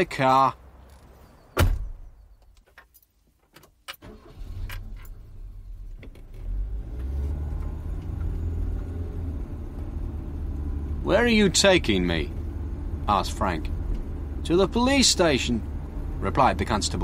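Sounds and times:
car door slamming: 0:01.6 - 0:02.1
car engine starting and running: 0:03.9 - 0:17.0.

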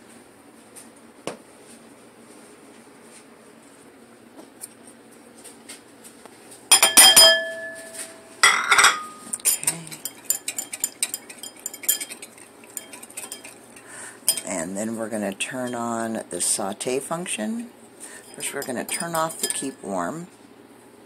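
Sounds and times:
ringing clinks on ceramic bowl: 0:06.7 - 0:13.6, 0:14.3 - 0:14.5, 0:18.3 - 0:19.8
whisk rattling against bowl: 0:09.5 - 0:16.8, 0:18.1 - 0:20.3.

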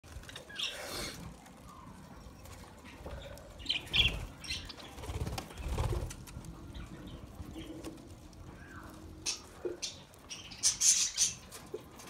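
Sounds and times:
bird wings flapping: 0:04.0 - 0:06.4.

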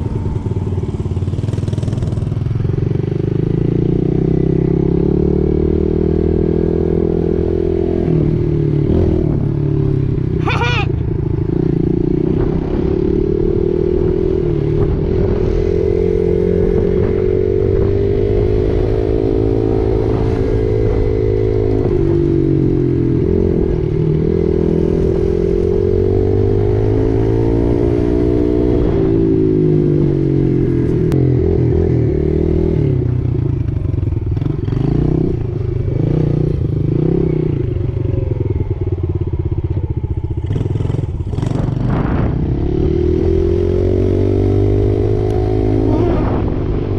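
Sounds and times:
dirt bike engine revving: 0:40.4 - 0:46.7.

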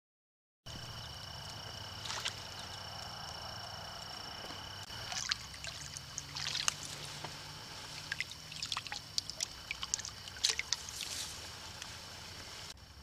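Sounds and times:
hand splashing in water: 0:04.9 - 0:07.0, 0:07.8 - 0:11.2.

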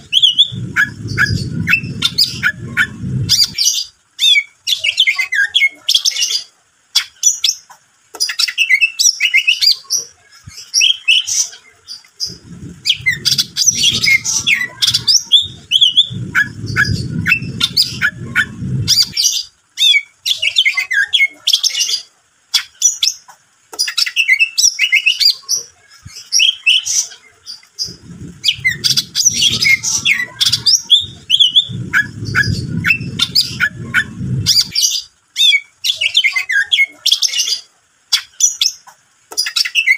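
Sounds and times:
low rumble: 0:00.0 - 0:03.7, 0:12.2 - 0:19.3, 0:27.8 - 0:34.8
bird singing: 0:00.0 - 0:07.6, 0:10.5 - 0:23.2, 0:26.1 - 0:39.9.

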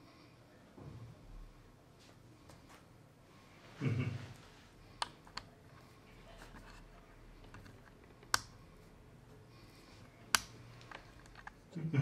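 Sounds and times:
sharp clicks: 0:10.3 - 0:11.5.

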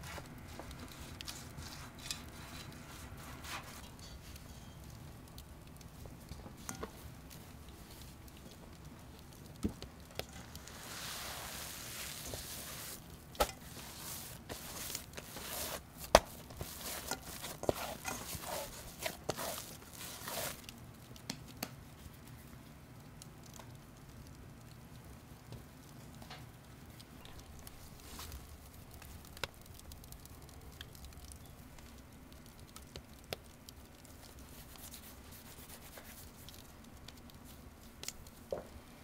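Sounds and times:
soft rustling hiss: 0:00.0 - 0:39.0.

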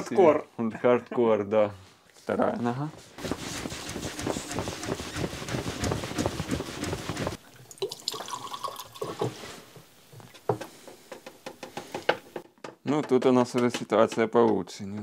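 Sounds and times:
fluid trickling into a glass: 0:07.4 - 0:09.4.

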